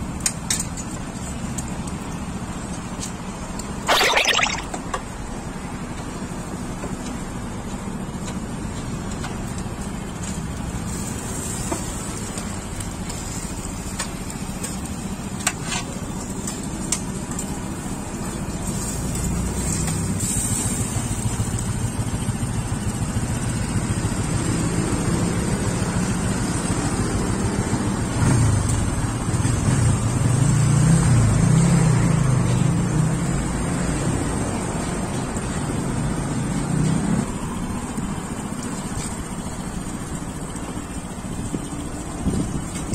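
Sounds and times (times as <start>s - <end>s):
road traffic: 18.6s - 42.9s.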